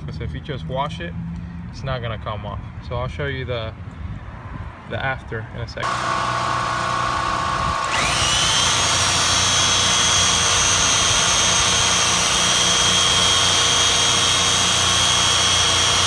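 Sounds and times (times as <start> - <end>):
machine polisher motor whine: 5.8 - 16.0.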